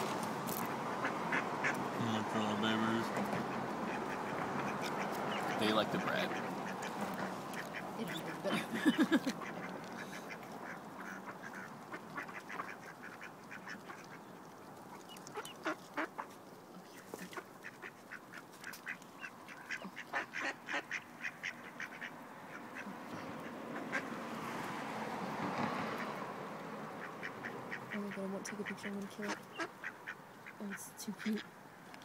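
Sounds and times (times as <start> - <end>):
ducks quacking: 0.8 - 24.6, 25.6 - 31.6.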